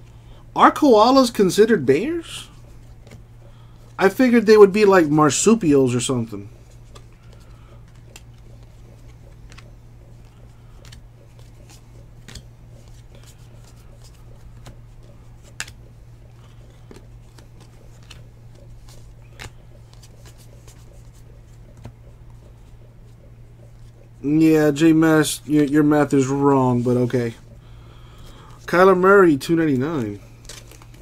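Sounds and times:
low electrical hum: 0.0 - 31.0
cards flipping and sliding: 2.5 - 3.3, 6.6 - 22.7, 30.0 - 31.0.

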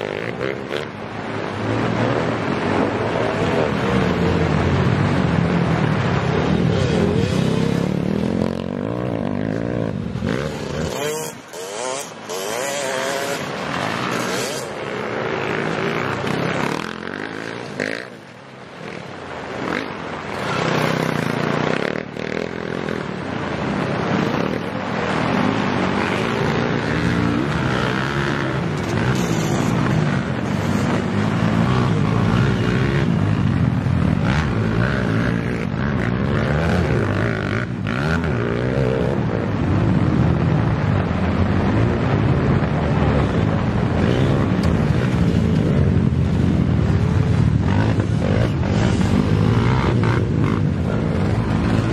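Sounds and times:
dirt bike engines revving: 0.0 - 51.9
heavy rain: 13.1 - 32.3.

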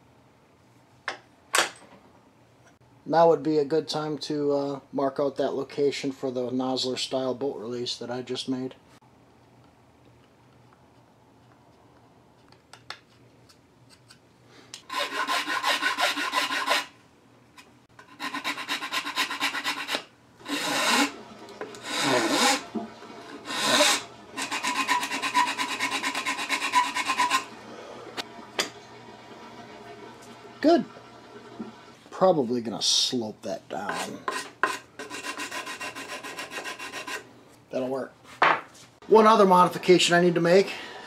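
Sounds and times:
hand file rasping wood: 14.9 - 16.9, 18.0 - 21.1, 21.8 - 22.6, 23.4 - 27.5, 33.8 - 37.2.

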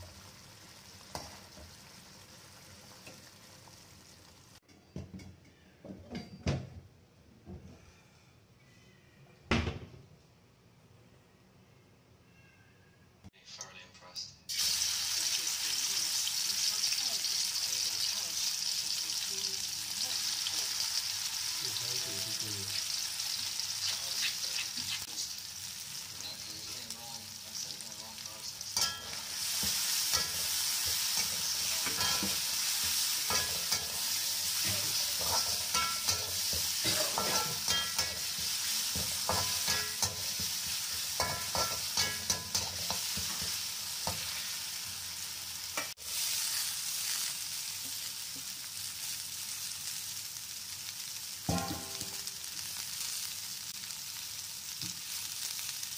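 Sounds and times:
paste sizzling in hot oil: 0.0 - 4.6, 14.5 - 55.9
metal spatula scraping wok: 28.7 - 44.8.

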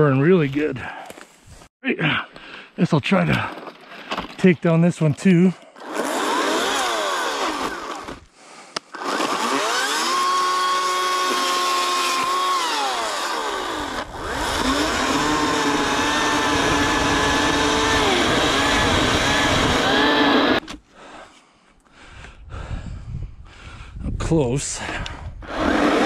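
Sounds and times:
electric chainsaw cutting wood: 5.8 - 20.8, 25.4 - 26.0.

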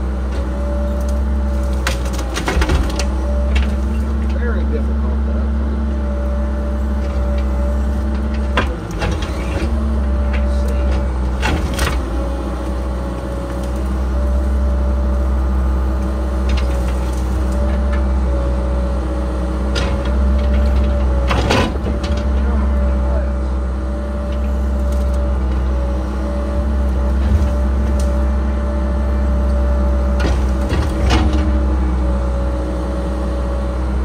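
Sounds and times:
diesel engine under load: 0.0 - 34.0
excavator arm knocks and clatters: 1.7 - 4.4, 8.1 - 12.1, 19.7 - 22.5, 27.1 - 28.1, 30.1 - 31.6.

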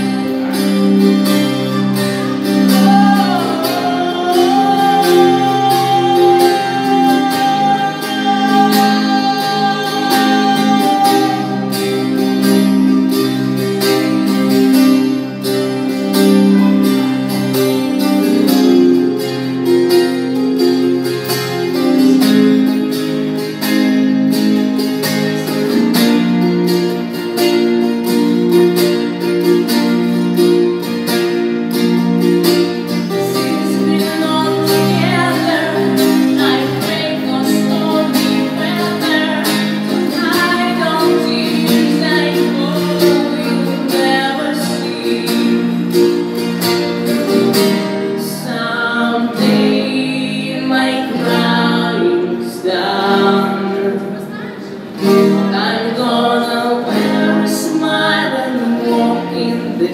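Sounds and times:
woman singing: 0.0 - 14.8, 32.8 - 46.4, 47.3 - 59.9
amplified acoustic guitar: 0.0 - 59.9.

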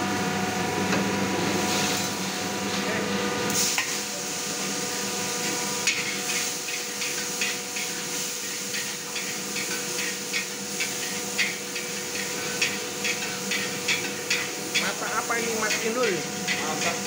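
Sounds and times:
spatula clanking against wok: 5.8 - 17.0.

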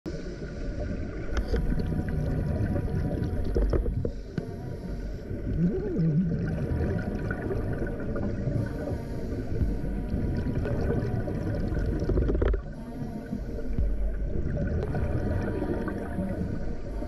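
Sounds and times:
gurgling water: 0.1 - 17.0
underwater rumble and hiss: 0.1 - 17.0
underwater clicks: 1.3 - 1.9, 3.1 - 4.5, 11.7 - 12.8.

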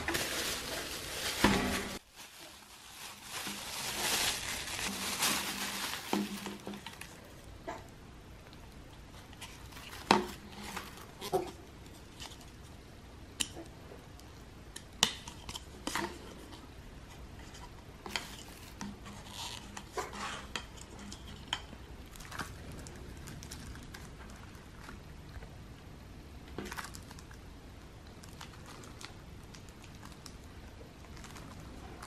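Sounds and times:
plastic crinkling: 0.0 - 12.7, 15.1 - 25.6, 26.5 - 27.4, 28.0 - 32.0.

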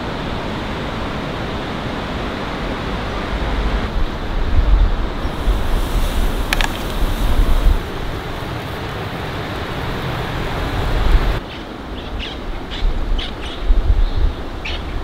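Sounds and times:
wind buffeting microphone: 3.2 - 11.4, 12.2 - 15.0
steady hiss: 4.2 - 11.4.

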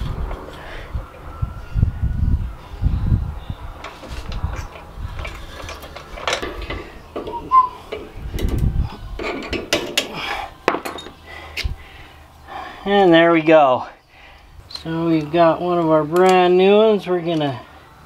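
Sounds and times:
scraping clicks and knocks: 3.8 - 8.6.

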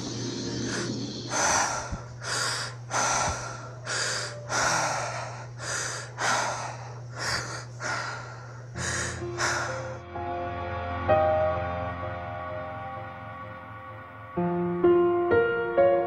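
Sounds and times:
person breathing hard: 0.0 - 10.0
low hum: 0.0 - 14.6.

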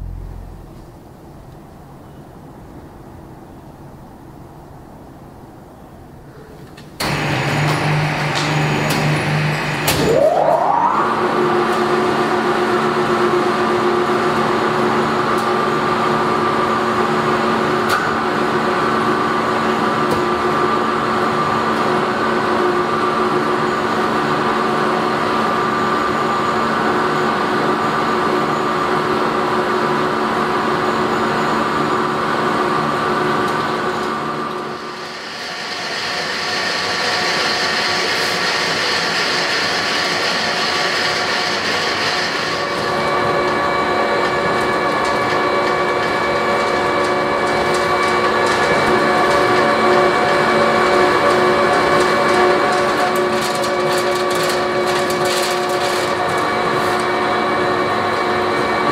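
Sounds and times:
machine noise with hiss: 6.3 - 14.4, 32.8 - 58.9
pellet mill humming with whine: 7.0 - 58.9.

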